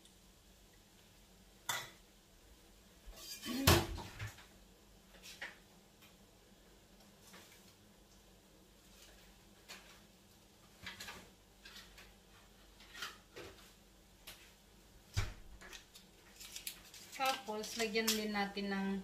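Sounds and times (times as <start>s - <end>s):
faint kitchen clicks and knocks: 3.1s - 6.3s, 6.9s - 18.6s.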